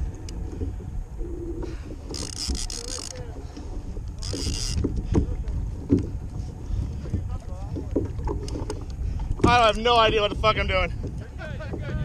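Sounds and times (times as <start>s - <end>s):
water rumble: 0.0s - 12.0s
wind: 0.0s - 12.0s
fishing reel drag buzzing: 1.3s - 3.2s, 4.1s - 4.9s.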